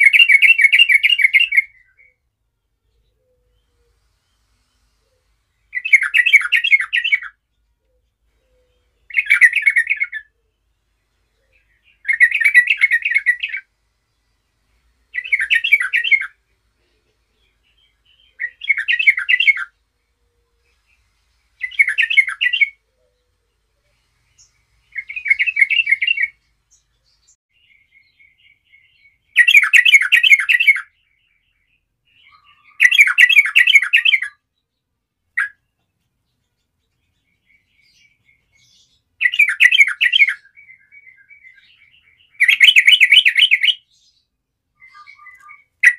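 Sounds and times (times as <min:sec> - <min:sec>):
bird warbling song: 0:00.0 - 0:45.9.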